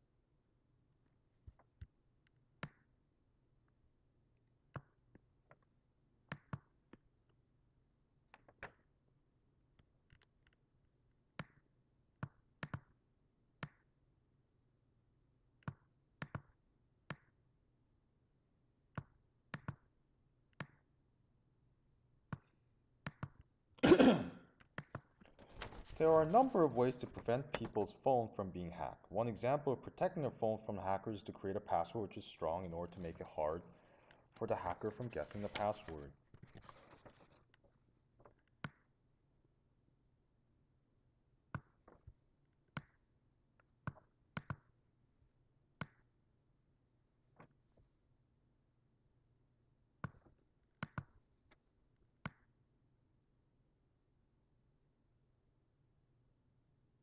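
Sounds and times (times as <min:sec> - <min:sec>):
computer mouse clicking: 0:09.8 - 0:10.6, 0:18.9 - 0:19.8, 0:43.9 - 0:44.7, 0:50.8 - 0:51.2
computer mouse buttons clicking: 0:10.1 - 0:10.6, 0:15.6 - 0:17.3, 0:18.9 - 0:19.8, 0:22.3 - 0:23.5, 0:43.8 - 0:44.7, 0:50.8 - 0:51.2.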